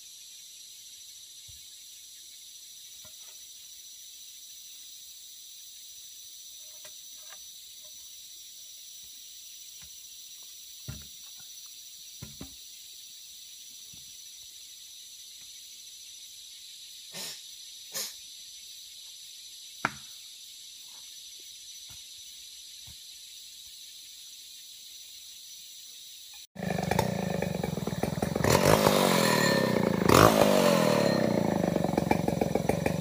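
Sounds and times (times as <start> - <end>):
high-pitched insect chorus: 0.0 - 33.0
knocks and thuds: 12.2 - 12.6.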